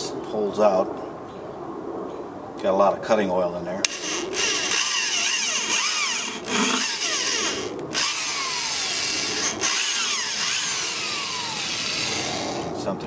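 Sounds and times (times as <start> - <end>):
electric drill motor whine: 3.9 - 12.7.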